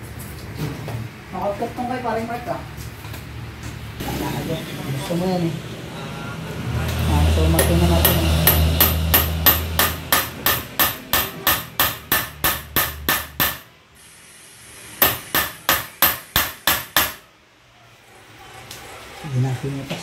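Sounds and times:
hammer striking metal: 0:07.5 - 0:13.7, 0:15.0 - 0:17.3.

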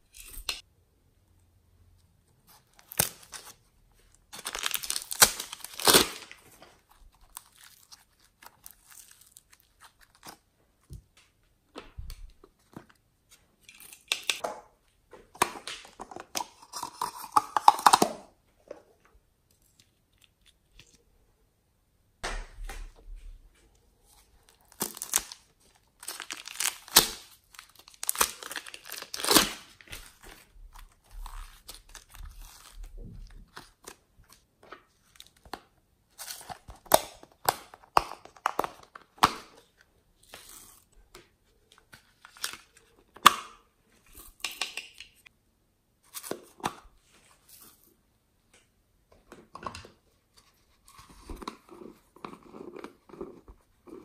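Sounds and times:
clay and slime crackling and tearing: 0:02.4 - 0:11.0, 0:24.4 - 0:45.3.

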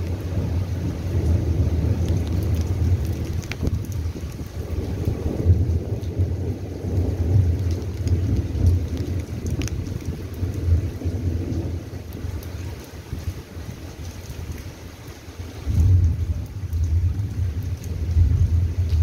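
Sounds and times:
low thunder rumble: 0:00.0 - 0:14.7, 0:15.4 - 0:19.0
rain drips and patters: 0:00.0 - 0:19.0.

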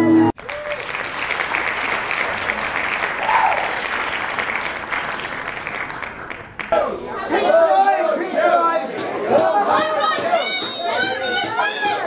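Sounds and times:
audience applauding: 0:00.4 - 0:06.8.

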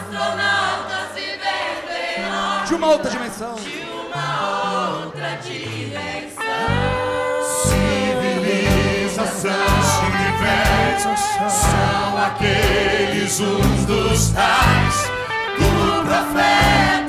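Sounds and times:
congregation singing: 0:00.0 - 0:17.0
stepping bass line: 0:07.7 - 0:17.0
man singing: 0:08.7 - 0:15.0.

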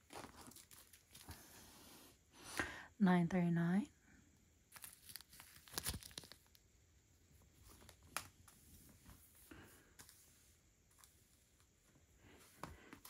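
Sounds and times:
plastic bags crinkling: 0:00.0 - 0:01.4, 0:04.7 - 0:06.7.

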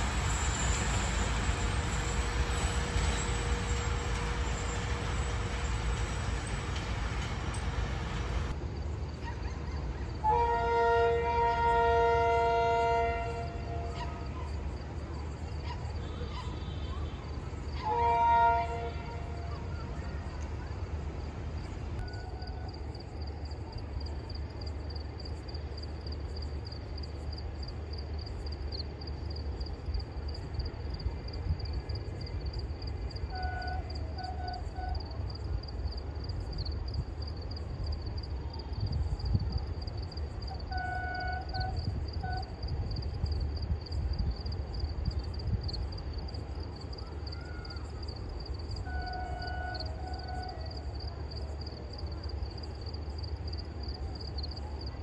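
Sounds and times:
train horn blasts: 0:10.2 - 0:14.4, 0:17.8 - 0:19.7, 0:33.3 - 0:35.2, 0:40.5 - 0:42.6, 0:48.8 - 0:50.8.

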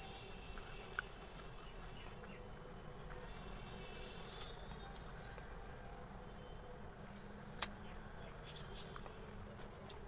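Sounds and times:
low background hum: 0:00.0 - 0:10.0.

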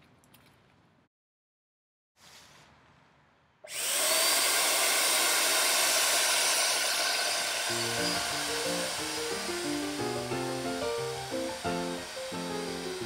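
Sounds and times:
paint sprayer motor whirring: 0:03.7 - 0:13.0
music: 0:07.7 - 0:13.0.

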